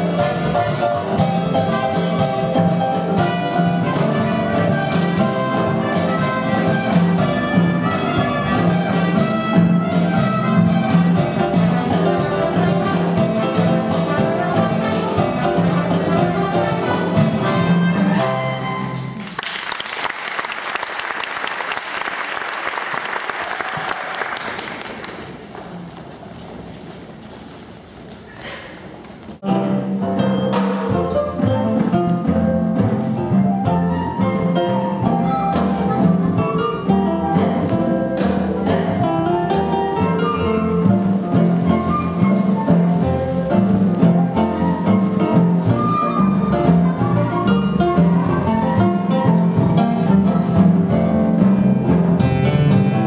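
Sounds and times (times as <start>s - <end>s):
music with steady beat: 0.0s - 19.2s
audience applauding: 19.1s - 25.5s.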